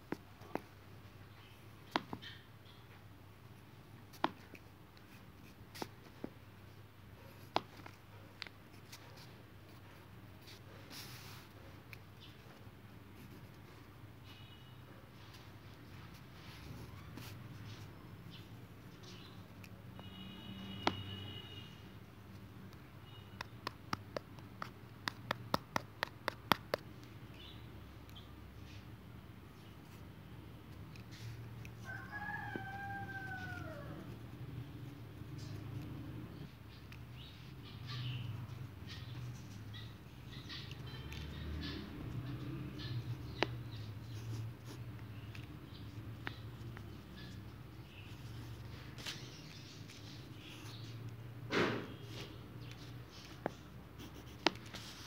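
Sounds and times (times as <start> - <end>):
pencil writing on paper: 22.3 - 27.5, 37.9 - 49.3, 52.1 - 55.0
pencil point clicking on page: 23.4 - 27.0, 52.7 - 54.8.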